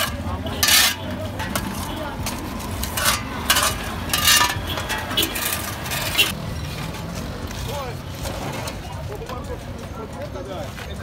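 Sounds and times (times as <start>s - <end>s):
people talking: 0.0s - 2.4s, 8.7s - 11.0s
metal shovels scraping: 0.0s - 6.4s.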